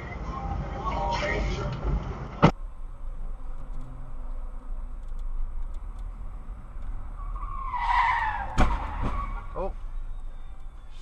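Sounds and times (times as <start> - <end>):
low car hum: 0.0 - 11.0
tyres screeching: 6.8 - 11.0
car crash impact: 7.7 - 9.5.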